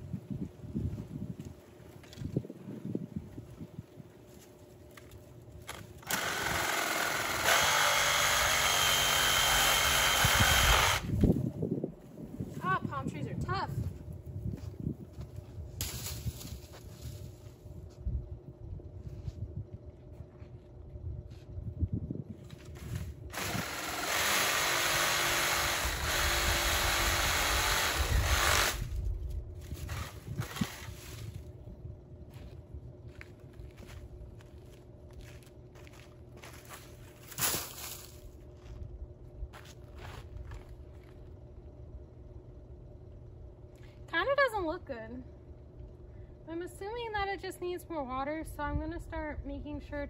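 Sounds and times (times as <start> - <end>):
power saw cutting palm fronds: 6.0 - 11.2, 23.3 - 28.9.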